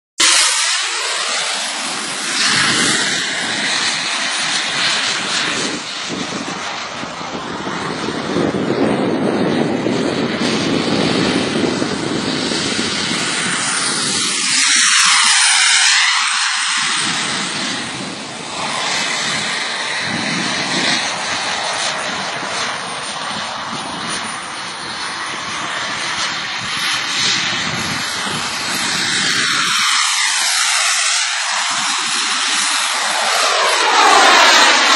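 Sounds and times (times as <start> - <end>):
jet aircraft flying low: 0.2 - 34.9.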